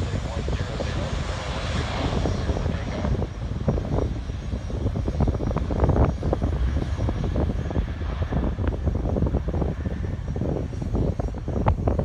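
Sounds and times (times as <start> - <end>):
jet engines: 0.0 - 12.0
wind buffeting microphone: 0.0 - 12.0.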